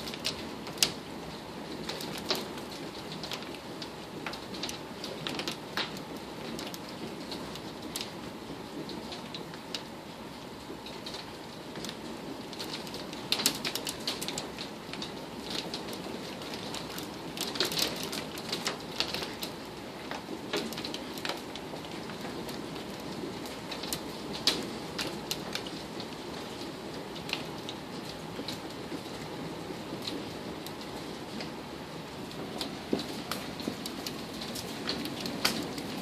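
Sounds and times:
hailstones clicking on hard surfaces: 0:00.0 - 0:09.9, 0:10.6 - 0:36.0
rain hissing: 0:18.7 - 0:36.0.

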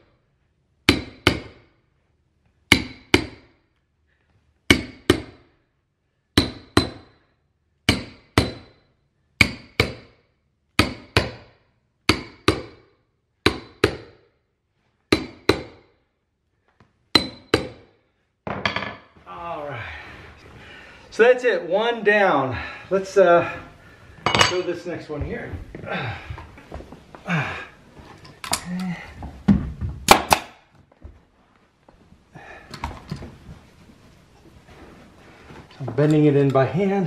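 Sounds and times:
hammer striking metal tool: 0:06.4 - 0:07.2, 0:07.9 - 0:08.8, 0:17.1 - 0:17.8.

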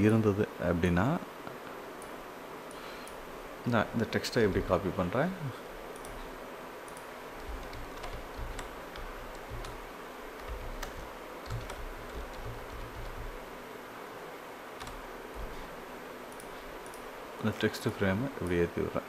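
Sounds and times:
keyboard keys clicking: 0:05.9 - 0:06.3, 0:06.9 - 0:13.4, 0:14.8 - 0:15.7.

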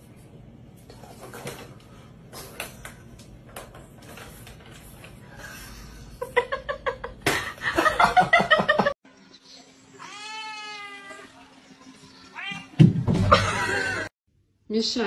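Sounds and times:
cat meowing: 0:10.0 - 0:11.3, 0:12.1 - 0:12.8
person laughing: 0:13.3 - 0:14.1.

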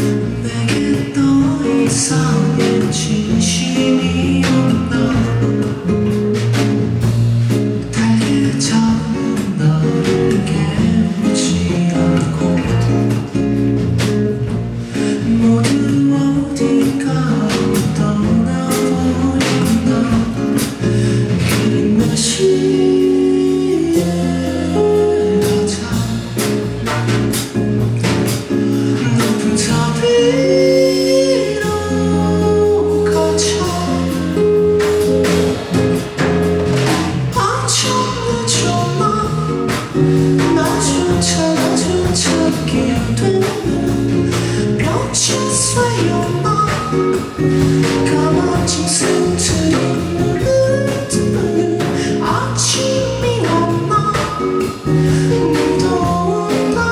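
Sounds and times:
man singing into a microphone: 0:00.2 - 0:05.8, 0:07.8 - 0:13.2, 0:15.0 - 0:20.8, 0:21.5 - 0:26.2, 0:29.0 - 0:34.5, 0:37.3 - 0:39.6, 0:40.4 - 0:47.0, 0:47.8 - 0:54.2, 0:54.9 - 0:56.9.

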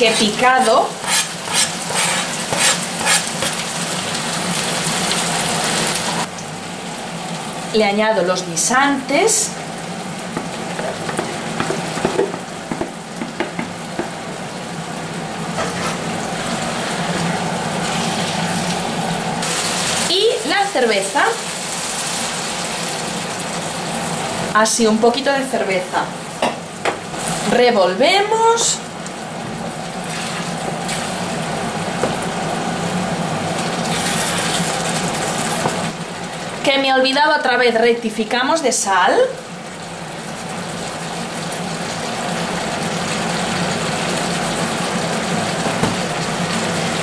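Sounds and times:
extractor hood fan humming: 0:00.0 - 0:47.0
food sizzling in a frying pan: 0:00.0 - 0:47.0
spoon scraping and stirring: 0:00.6 - 0:03.6.

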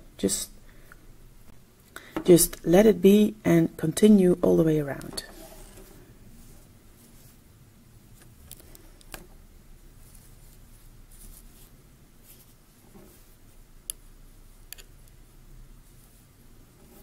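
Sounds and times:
yarn rustling on knitting loom: 0:04.6 - 0:07.4, 0:08.2 - 0:13.7.

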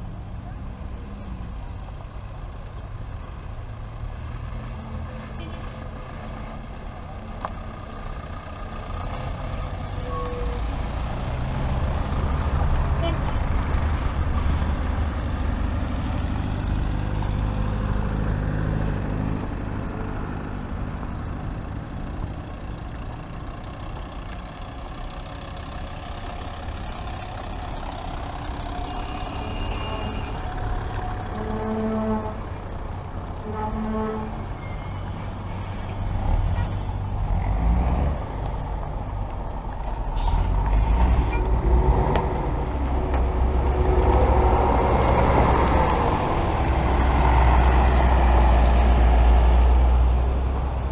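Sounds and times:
bus engines rumbling in traffic: 0:00.0 - 0:50.9
bus horn toots: 0:05.2 - 0:05.8, 0:10.0 - 0:10.6, 0:13.0 - 0:13.4, 0:28.7 - 0:32.6, 0:33.4 - 0:35.3.

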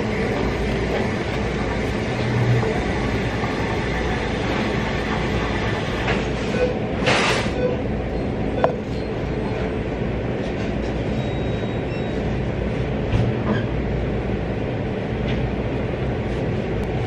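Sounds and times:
coffee shop rumble: 0:00.0 - 0:17.0.

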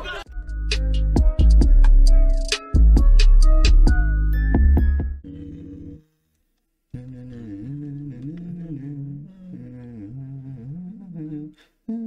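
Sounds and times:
man humming a tune: 0:05.2 - 0:06.1, 0:06.9 - 0:12.0.

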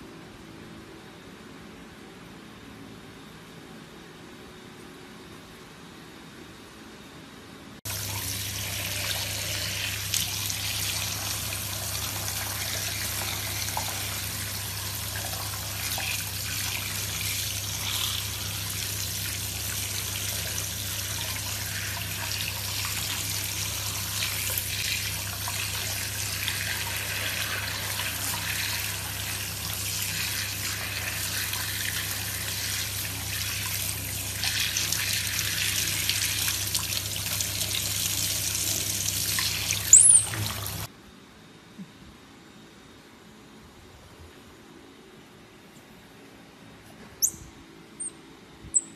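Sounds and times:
tap water running and splashing: 0:07.9 - 0:40.9.

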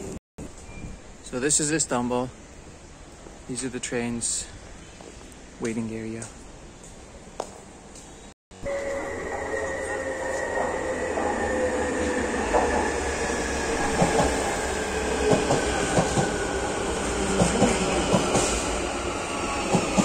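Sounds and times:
electric train whine: 0:08.5 - 0:20.0.

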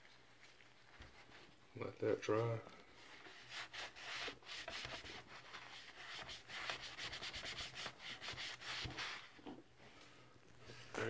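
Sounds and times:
cloth wiping plastic: 0:02.2 - 0:09.4.

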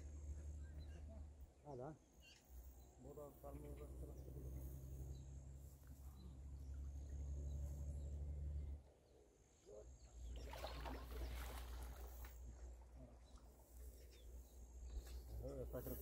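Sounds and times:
fish splashing water: 0:10.4 - 0:12.4.

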